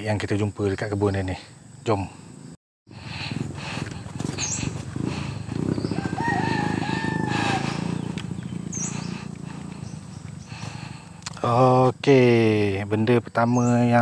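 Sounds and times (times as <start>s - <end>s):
high bird chirps: 4.3s - 10.8s
rooster crowing: 5.7s - 8.1s.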